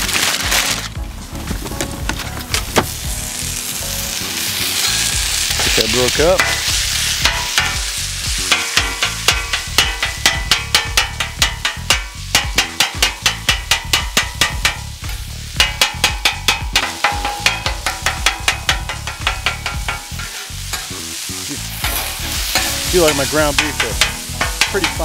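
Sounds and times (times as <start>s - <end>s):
meat sizzling: 0.0s - 1.0s, 2.0s - 25.0s
metal spatula clacking on griddle: 5.6s - 21.0s, 21.7s - 25.0s.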